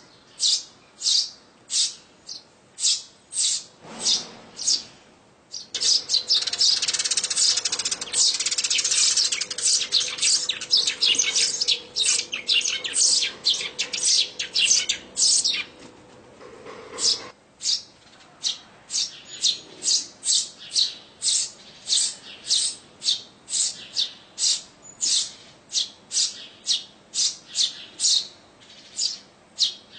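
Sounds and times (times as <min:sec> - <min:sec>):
nestlings chirping: 0:05.5 - 0:15.9.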